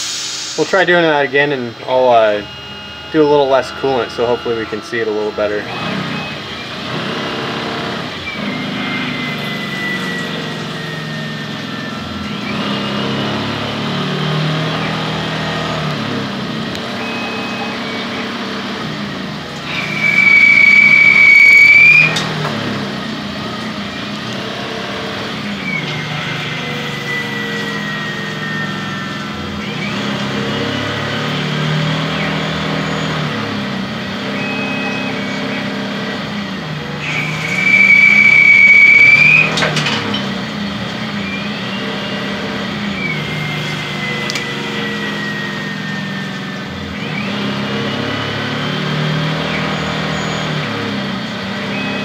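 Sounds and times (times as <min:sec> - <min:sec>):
falling whine: 0:00.0 - 0:52.0
high-pitched squeal: 0:00.0 - 0:52.0
lathe motor running: 0:00.0 - 0:52.0.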